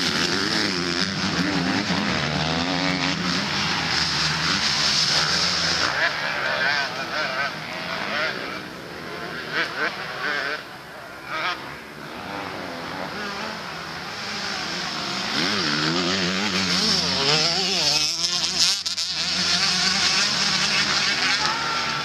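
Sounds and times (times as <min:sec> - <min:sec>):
motocross motorcycle engines revving: 0:00.0 - 0:22.0.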